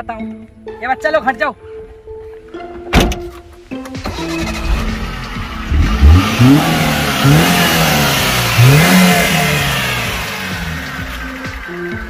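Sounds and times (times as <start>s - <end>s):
car engine revving: 4.0s - 12.0s.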